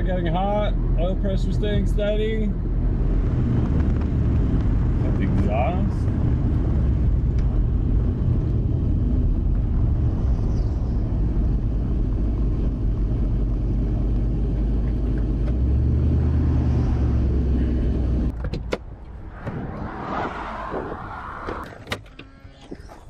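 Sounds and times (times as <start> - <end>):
car exhaust drone: 0.0 - 23.0
tyre and wind noise: 0.8 - 23.0.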